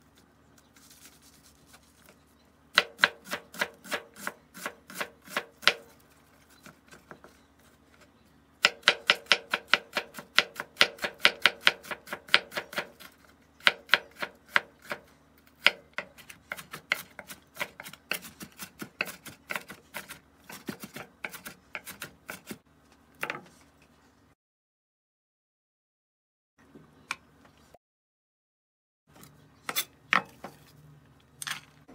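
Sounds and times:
knife chopping on wooden board: 2.8s - 5.9s, 8.6s - 15.0s, 15.6s - 22.6s.

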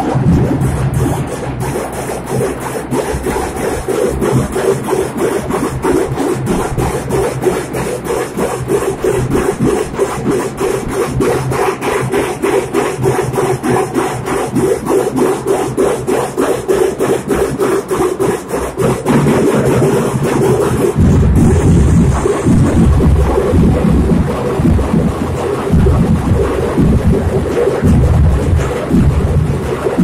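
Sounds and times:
barrel drums beaten with sticks: 18.8s - 30.0s.

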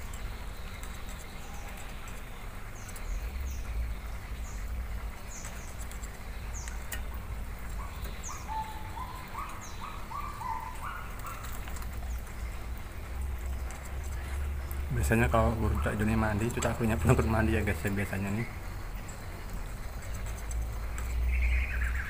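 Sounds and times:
songbirds chirping: 0.0s - 22.0s
whistled bird notes: 7.7s - 11.5s, 21.1s - 22.0s.

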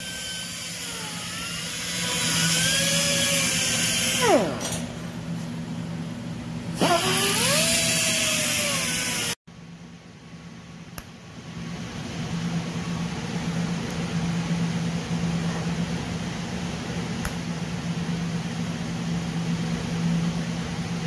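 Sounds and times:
die grinder whining: 0.0s - 4.8s, 6.8s - 9.4s
welder humming: 0.0s - 5.6s, 6.7s - 9.4s.

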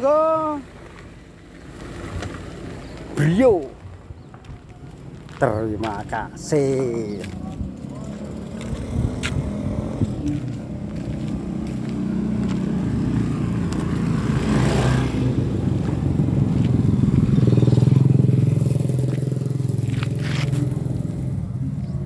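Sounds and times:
tyres on gravel: 0.0s - 21.4s
truck diesel engine running: 7.2s - 14.2s.

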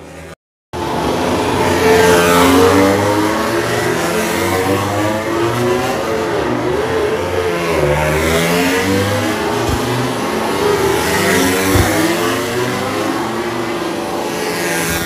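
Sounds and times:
racing motorcycle engines revving: 0.0s - 15.0s
dull bumps: 11.7s - 12.2s.

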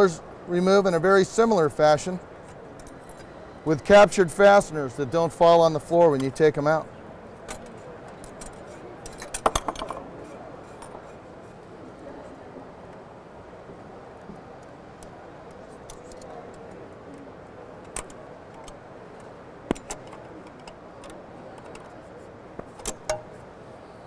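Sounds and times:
exhibition hall hum: 0.0s - 24.0s
sharp metallic clicks and taps: 19.7s - 21.9s, 22.6s - 23.3s.

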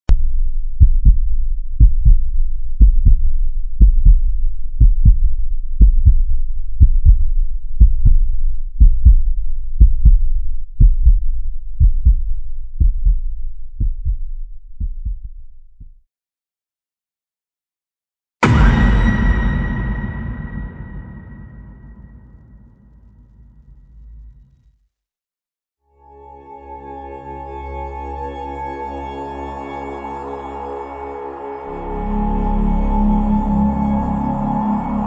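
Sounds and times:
heartbeat thumps: 0.8s - 16.0s.

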